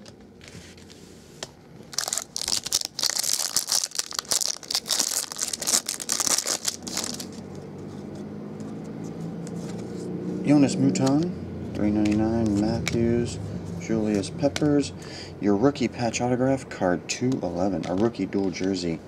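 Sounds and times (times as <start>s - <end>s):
plastic wrapper tearing and crinkling: 1.9s - 7.4s.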